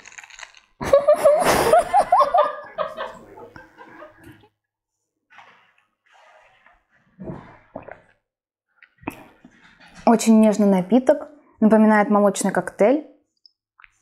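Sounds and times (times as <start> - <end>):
burst of laughter: 0.8 - 4.3.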